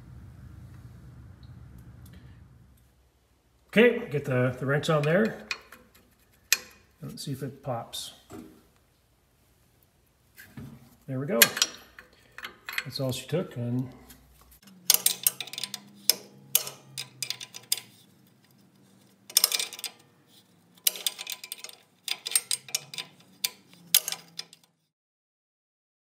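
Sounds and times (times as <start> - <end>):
wrench clicking on metal nut: 5.0 - 6.8, 14.7 - 18.1, 19.3 - 20.0, 20.7 - 24.8.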